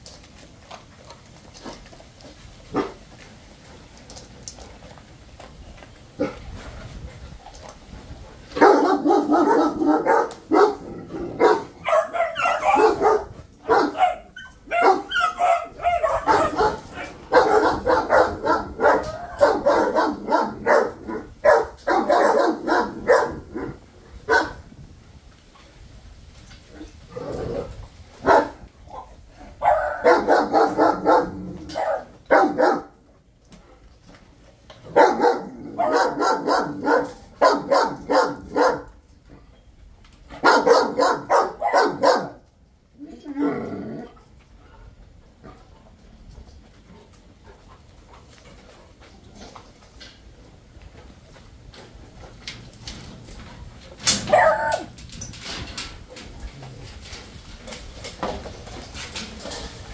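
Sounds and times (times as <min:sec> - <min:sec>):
dog barking: 0:08.6 - 0:10.8, 0:11.4 - 0:24.6, 0:28.2 - 0:28.6, 0:29.6 - 0:33.0, 0:34.9 - 0:38.9, 0:40.4 - 0:42.4, 0:54.3 - 0:54.8.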